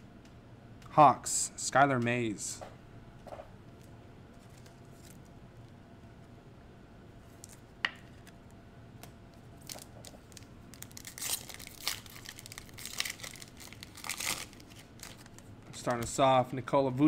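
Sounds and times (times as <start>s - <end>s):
foil wrapper tearing and crinkling: 9.6s - 15.5s.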